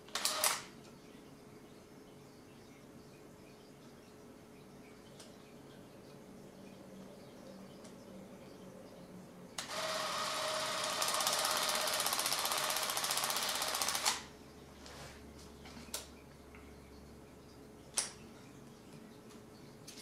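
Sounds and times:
movie camera mechanical rattle: 9.6 - 14.2.

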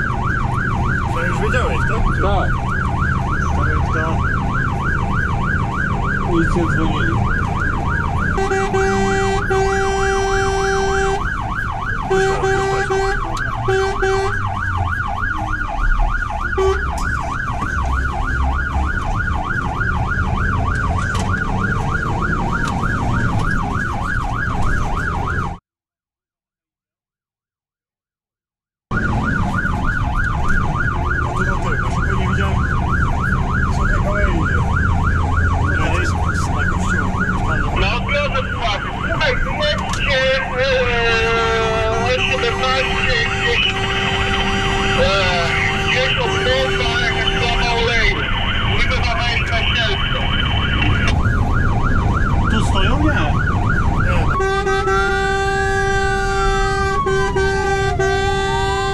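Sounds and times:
engine and road rumble: 0.0 - 25.6, 28.9 - 58.9
fire engine siren yelping: 0.0 - 25.6, 28.9 - 58.9
horn blasts: 8.3 - 11.3, 12.1 - 14.5, 16.6 - 17.0, 40.8 - 48.3, 54.2 - 58.9.

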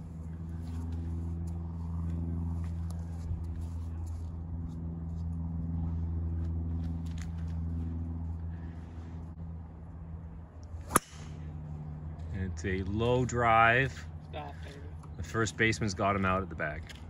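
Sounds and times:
engine humming: 0.0 - 17.0.

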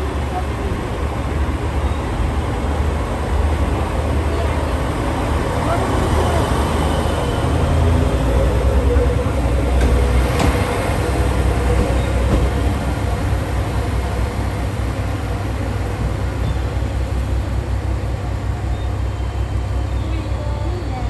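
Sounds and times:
diesel railcar rumbling: 0.0 - 21.0.

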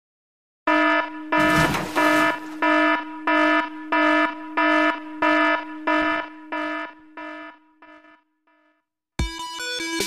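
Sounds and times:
buzzy alarm beeps: 0.7 - 8.3.

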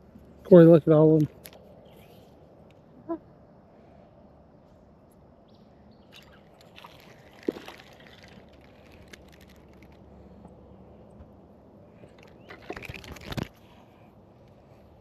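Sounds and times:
water sloshing: 6.1 - 10.0.

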